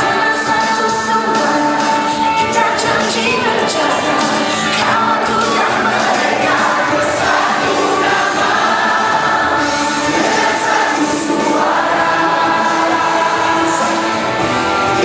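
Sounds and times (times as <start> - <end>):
crowd singing in unison: 0.0 - 15.0.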